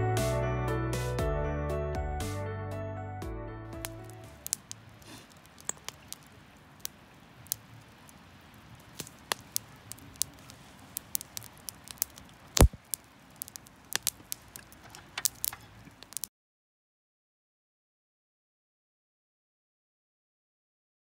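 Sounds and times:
wood fire crackling: 3.7 - 16.3.

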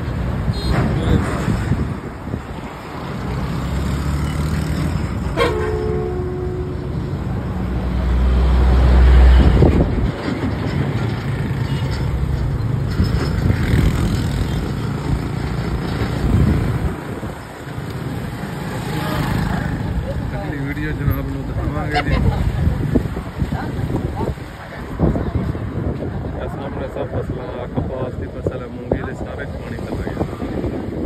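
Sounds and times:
road traffic rumbling: 0.0 - 31.0
heavy vehicle passing: 1.1 - 28.4
car horn toot: 5.4 - 6.8.

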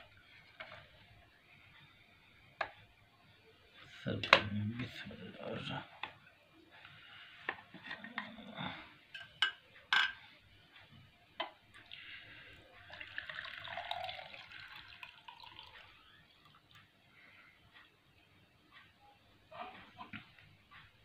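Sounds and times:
juice pouring into glass mug: 12.9 - 16.7.

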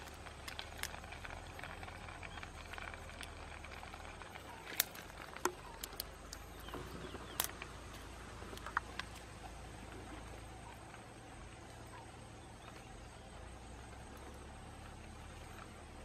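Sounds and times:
sharp clicks and ticks: 0.0 - 9.4.

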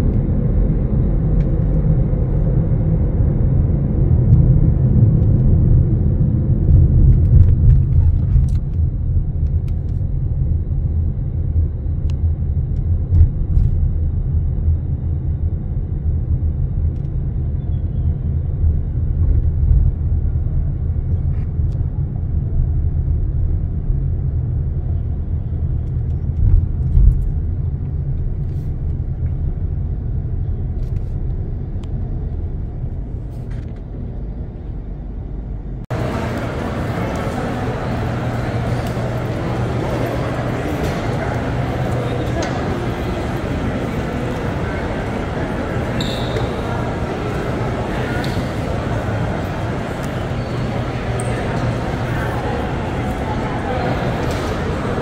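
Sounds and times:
airplane cabin rumble: 0.0 - 55.0.

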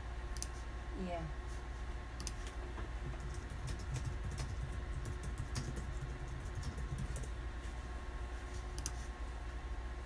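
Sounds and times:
low steady hum: 0.0 - 10.0
computer keys clicking: 2.2 - 7.4.

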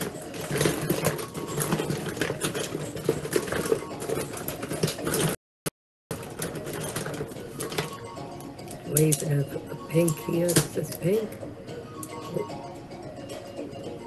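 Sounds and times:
plastic cases clicking together: 0.0 - 5.4, 6.1 - 8.0.

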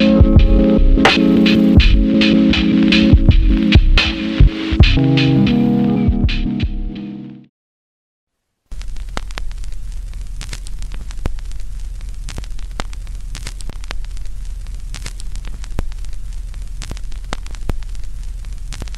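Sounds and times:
crackling pops and clicks: 8.7 - 18.9.

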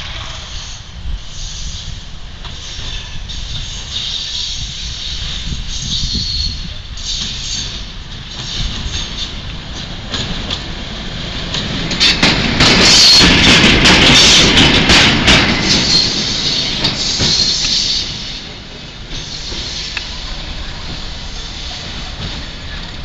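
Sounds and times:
diesel locomotive engine: 0.0 - 23.0
wheels clicking over rail joints: 7.0 - 23.0.

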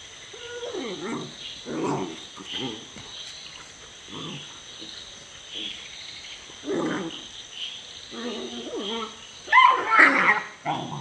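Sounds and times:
puppies growling: 0.3 - 3.1, 4.0 - 4.9, 6.6 - 7.4, 8.1 - 11.0.

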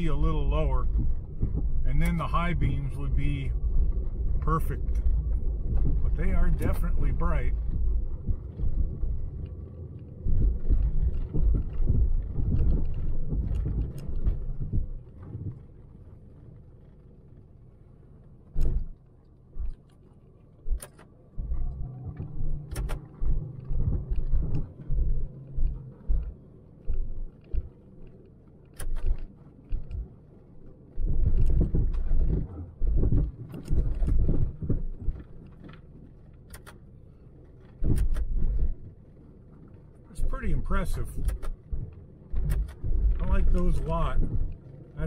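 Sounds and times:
car rumble on rough road: 0.0 - 45.0
clicks and rattles: 22.1 - 30.2, 30.9 - 40.0, 40.6 - 45.0.

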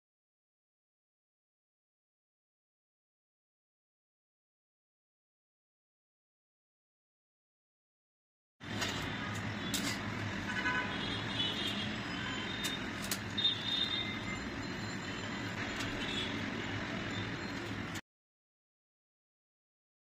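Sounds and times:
traffic noise: 8.6 - 18.0.

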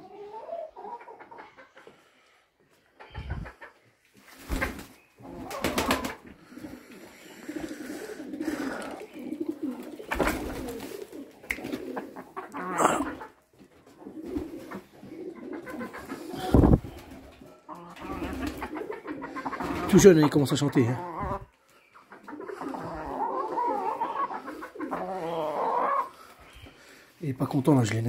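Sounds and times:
chickens clucking: 0.0 - 28.0
wings flapping and scuffing: 4.2 - 6.4, 8.5 - 12.2, 13.0 - 20.0.

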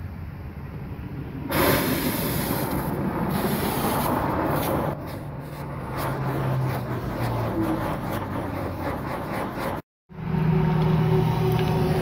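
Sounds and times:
torch flame hissing: 1.5 - 4.7.

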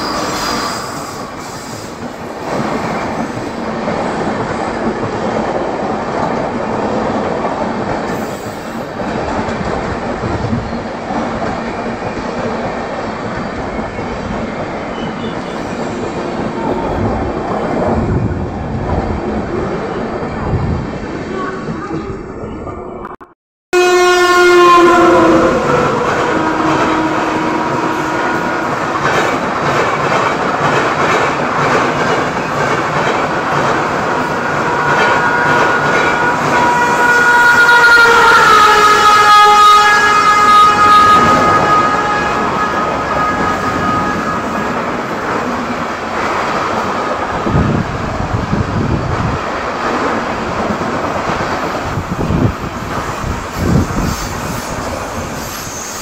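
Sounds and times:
train coaches rushing by: 0.0 - 22.5, 23.9 - 56.0
train horn blast: 23.7 - 29.0, 34.4 - 44.9.

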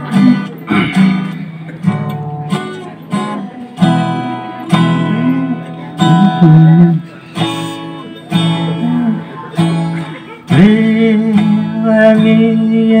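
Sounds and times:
acoustic guitar strumming: 0.0 - 13.0
person humming: 5.0 - 7.0.

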